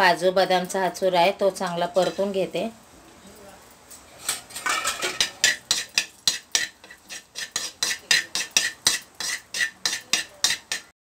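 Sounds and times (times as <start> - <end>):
steel spoon scraping a pan: 1.9 - 2.5, 4.1 - 11.0.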